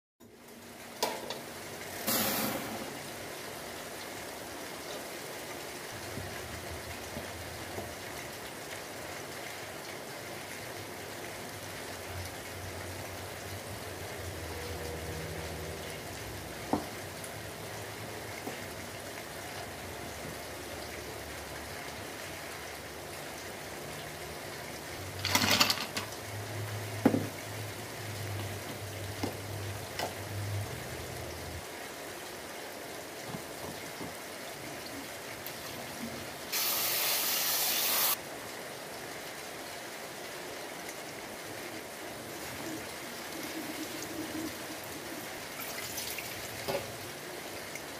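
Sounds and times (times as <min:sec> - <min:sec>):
milk boiling in saucepan: 0:02.8 - 0:38.2, 0:41.0 - 0:47.9.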